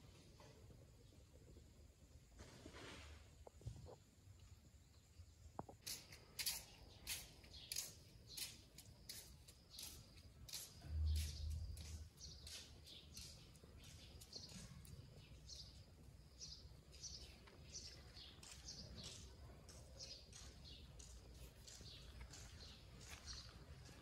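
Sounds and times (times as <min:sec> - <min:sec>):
birds chirping: 0:05.6 - 0:24.0.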